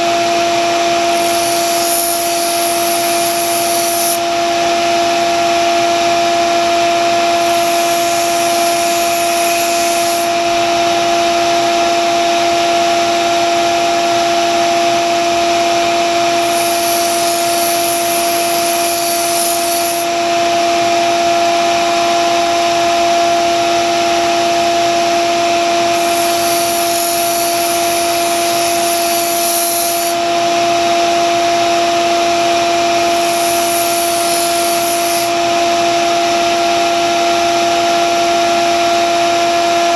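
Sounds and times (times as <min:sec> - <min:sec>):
belt sander motor hum: 0:00.1 - 0:04.6, 0:07.0 - 0:11.2, 0:16.1 - 0:35.8
knife blade grinding on belt: 0:01.1 - 0:04.2, 0:07.4 - 0:10.3, 0:16.4 - 0:20.1, 0:25.9 - 0:30.2, 0:33.0 - 0:35.3.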